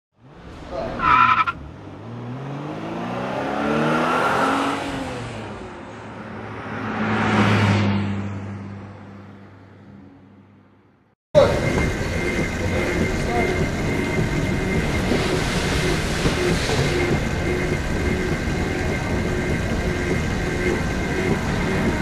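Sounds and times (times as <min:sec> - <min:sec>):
car engine revving past: 0:00.2 - 0:09.0
tyre squeal: 0:00.9 - 0:01.6.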